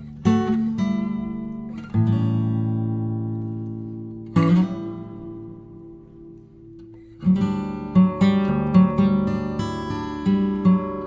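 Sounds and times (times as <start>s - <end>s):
acoustic guitar chords strummed: 0.0s - 11.0s.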